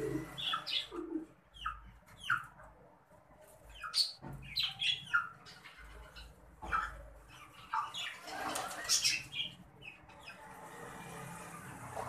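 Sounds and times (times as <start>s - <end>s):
budgerigars chirping: 0.0s - 2.5s, 3.7s - 10.4s.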